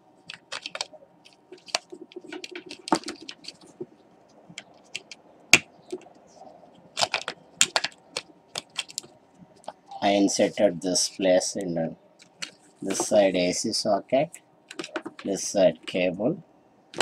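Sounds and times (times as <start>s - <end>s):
plastic clicks and knocks: 14.7s - 15.3s.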